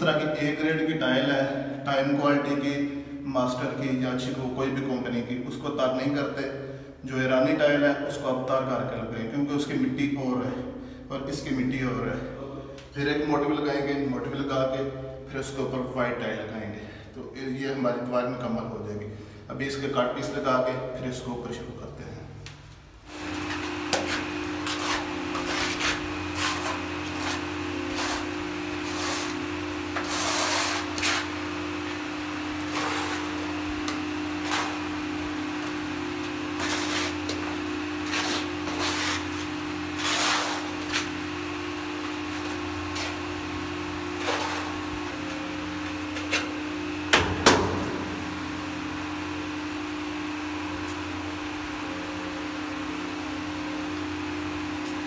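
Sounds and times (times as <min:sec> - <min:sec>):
steady low hum: 0:00.0 - 0:55.0
tiles scraping on adhesive: 0:30.0 - 0:31.4, 0:32.6 - 0:33.4, 0:36.5 - 0:41.2.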